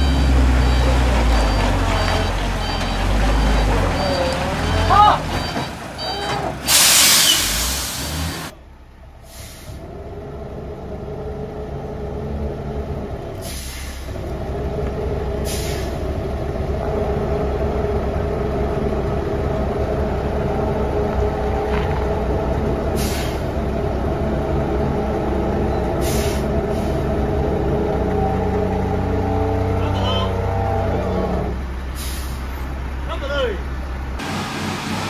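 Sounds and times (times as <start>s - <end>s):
diesel truck engine working hard: 0.0s - 35.0s
air brake hisses: 6.6s - 8.5s, 9.2s - 9.8s, 13.4s - 14.1s, 15.4s - 16.0s, 23.0s - 23.5s, 26.0s - 27.0s, 31.9s - 32.6s.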